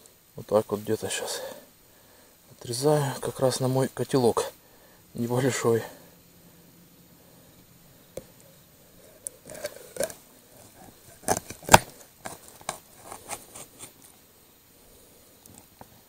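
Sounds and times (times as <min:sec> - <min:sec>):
knife crunching through fish: 0:09.5 - 0:13.8.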